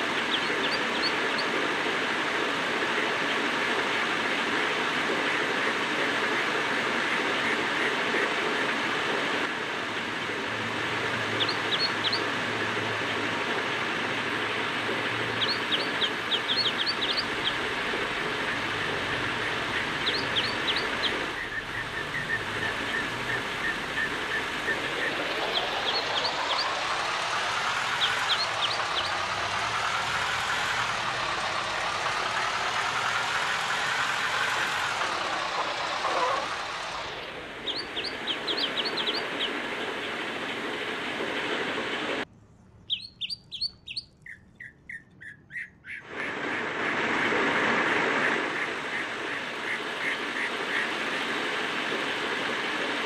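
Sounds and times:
birds chirping: 0:00.0 - 0:01.8, 0:11.0 - 0:41.9, 0:42.6 - 0:46.4
outdoor hiss: 0:00.0 - 0:42.3, 0:46.1 - 0:53.0.

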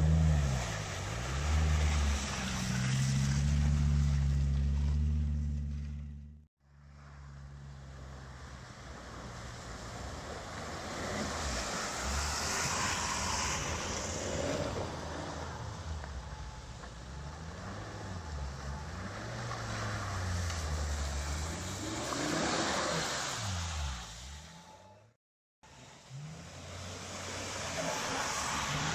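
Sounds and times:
water and mud splashing: 0:07.9 - 0:16.0, 0:17.5 - 0:24.3, 0:26.2 - 0:28.9
car engine revving: 0:09.9 - 0:25.1.

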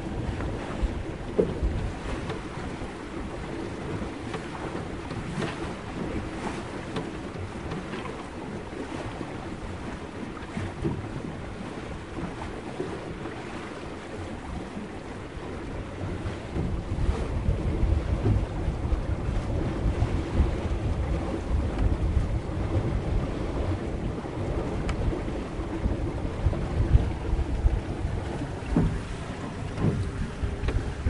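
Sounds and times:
water lapping along boat hull: 0:00.0 - 0:31.0
wind rumble: 0:14.2 - 0:31.0.

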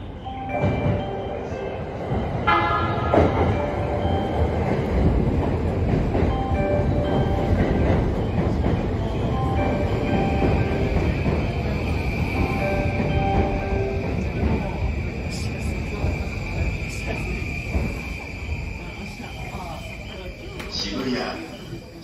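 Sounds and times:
train cars rumbling past: 0:00.0 - 0:22.0
train horn: 0:02.5 - 0:03.5.

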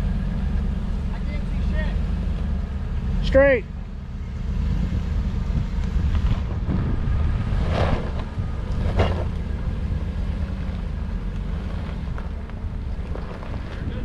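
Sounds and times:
jeep engine running low: 0:00.0 - 0:14.0
wind buffeting microphone: 0:04.6 - 0:09.8, 0:12.2 - 0:14.0
rock crunching: 0:10.4 - 0:14.0.

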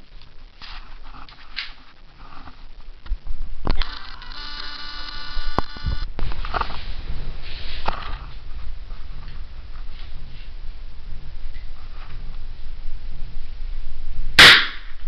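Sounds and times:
sharp clicks: 0:03.0 - 0:06.1
buzzing electronic tone: 0:03.6 - 0:06.2
low rumbling handling noise: 0:05.5 - 0:15.0.

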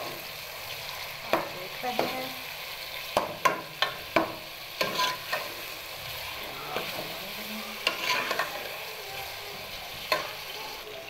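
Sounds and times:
onions sizzling in hot oil: 0:00.0 - 0:11.0
metal ladle scraping and clinking pot: 0:04.8 - 0:05.6, 0:07.8 - 0:08.6.

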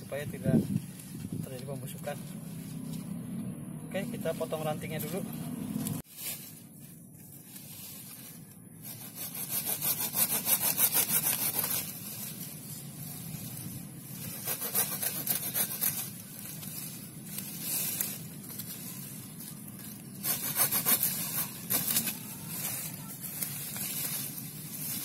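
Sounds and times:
hand saw cutting branch: 0:08.8 - 0:12.8, 0:13.6 - 0:25.0.

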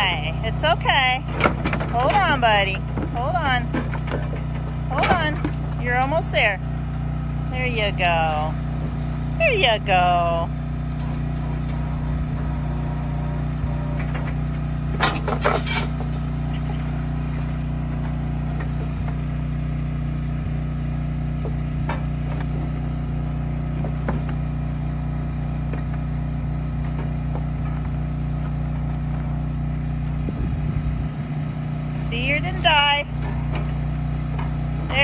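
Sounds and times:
engine running: 0:00.0 - 0:35.0
metal clanks from chute: 0:13.5 - 0:19.2.

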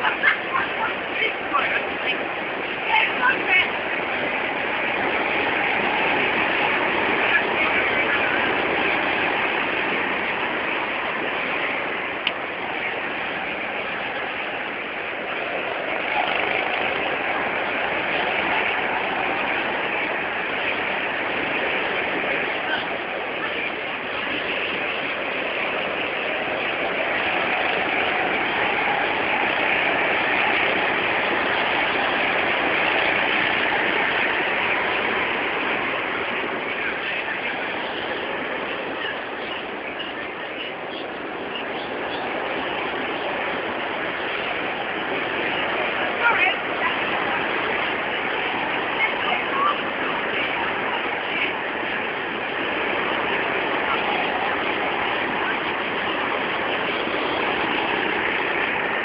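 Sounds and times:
go-karts droning: 0:00.0 - 0:59.0.

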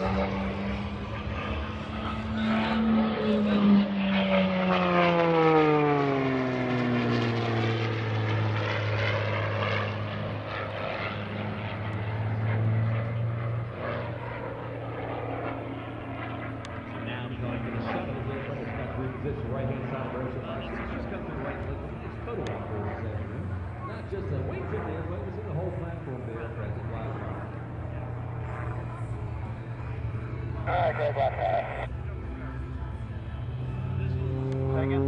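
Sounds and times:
propeller plane flying past: 0:00.0 - 0:35.0.

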